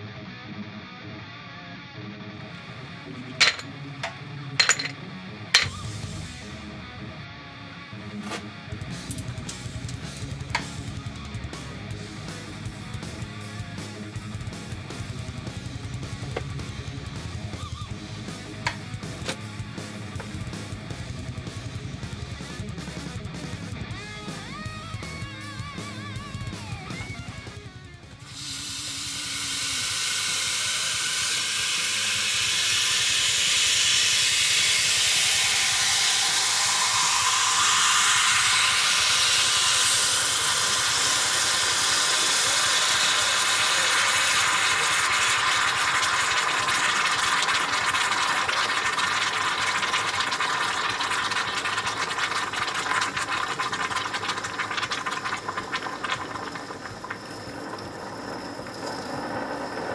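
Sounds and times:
hot metal hissing on ice: 0:28.2 - 0:59.9
crackling and popping: 0:43.9 - 0:59.0.

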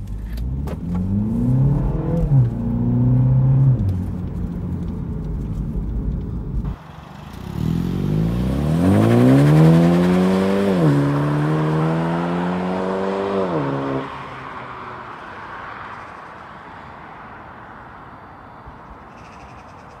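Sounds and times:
car engine accelerating: 0:00.0 - 0:14.4.

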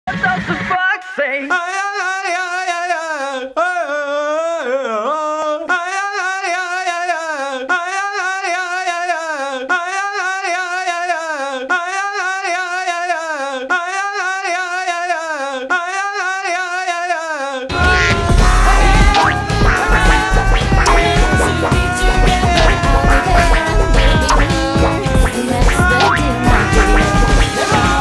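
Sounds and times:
boy laughing: 0:17.8 - 0:28.0.

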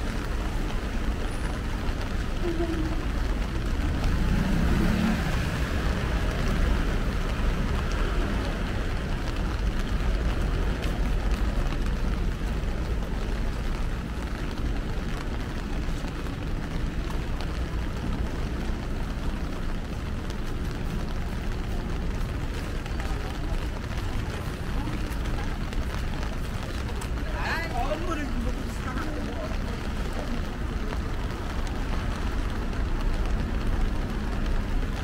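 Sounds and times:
heavy rain: 0:00.0 - 0:35.0.

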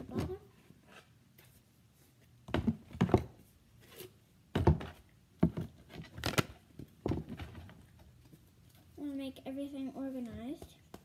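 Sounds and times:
canvases knocking in plastic tub: 0:02.4 - 0:03.4, 0:04.5 - 0:07.8.

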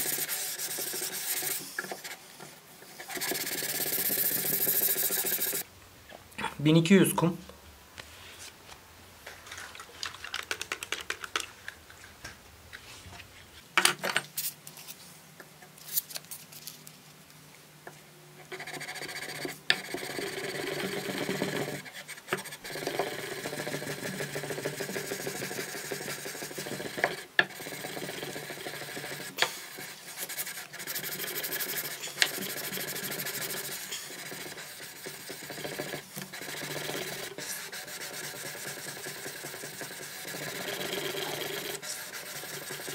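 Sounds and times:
sandpaper rubbing on steel blade: 0:00.0 - 0:01.7, 0:03.0 - 0:05.6, 0:23.4 - 0:27.0, 0:27.6 - 0:42.9.

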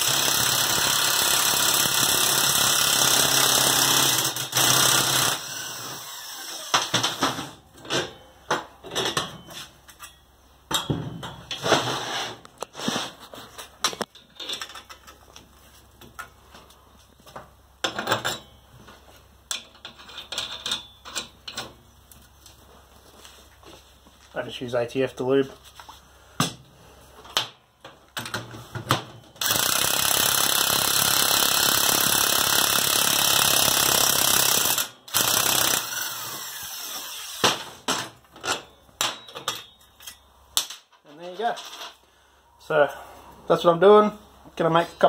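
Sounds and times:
electric impact wrench hammering: 0:00.0 - 0:07.6, 0:29.4 - 0:37.9
clanks of steel strap and tools: 0:08.8 - 0:11.6.

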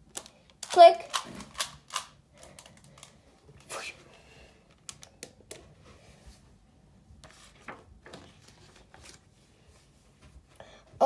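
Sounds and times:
paper page rustling: 0:07.2 - 0:09.4.

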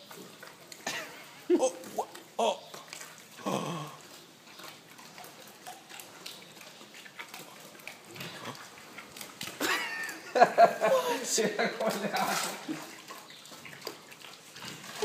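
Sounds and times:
pig chewing and crunching: 0:00.0 - 0:15.0.

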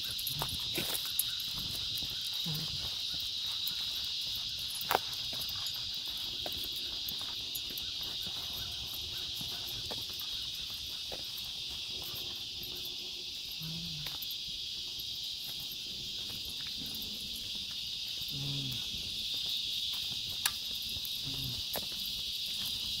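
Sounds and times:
insects droning: 0:00.0 - 0:23.0
faint clicks: 0:20.4 - 0:20.6.

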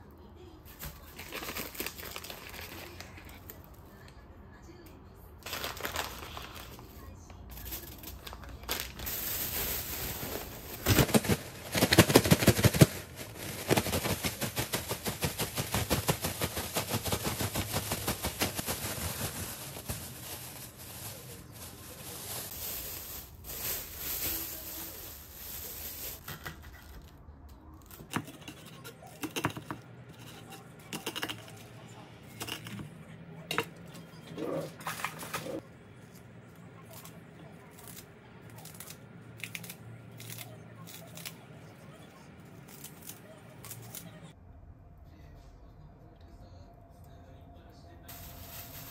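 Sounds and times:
plastic bag being shaken: 0:00.8 - 0:03.4, 0:05.4 - 0:27.0, 0:48.1 - 0:48.9
plastic bag crinkling: 0:00.8 - 0:03.5, 0:05.4 - 0:27.1, 0:48.1 - 0:48.9.

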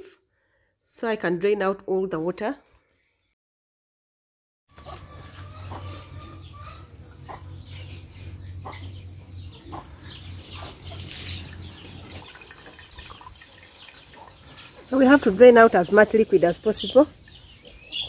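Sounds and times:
chickens clucking: 0:04.7 - 0:18.0.

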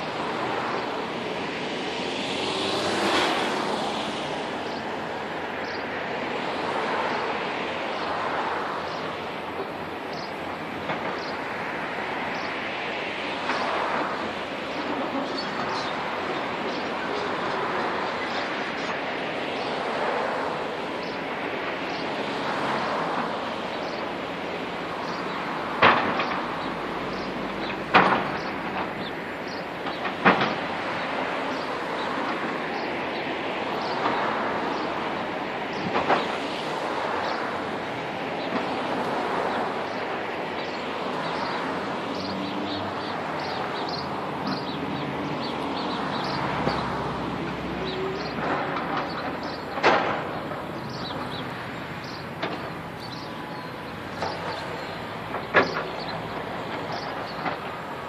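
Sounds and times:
vehicle passing: 0:00.0 - 0:09.4, 0:30.6 - 0:58.0
engine and traffic noise: 0:00.0 - 0:58.0.

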